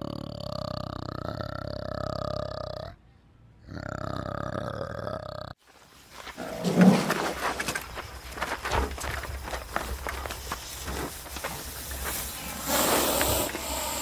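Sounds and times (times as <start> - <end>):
rhinoceros chewing crunch: 6.2 - 13.7
rhinoceros snort: 6.4 - 7.3, 12.4 - 14.0.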